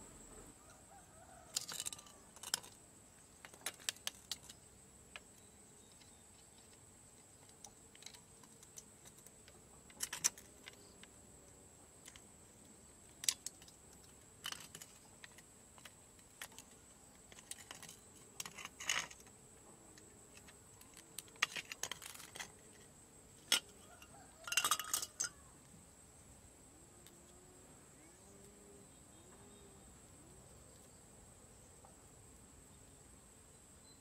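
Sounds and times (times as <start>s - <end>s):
hand tool scraping copper wire: 14.4s - 19.3s, 20.3s - 22.8s
sharp metallic clicks and clinks: 23.5s - 25.4s.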